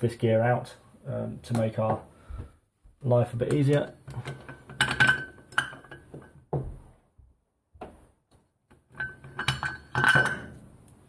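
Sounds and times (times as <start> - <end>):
metal parts clinking: 8.9 - 10.6.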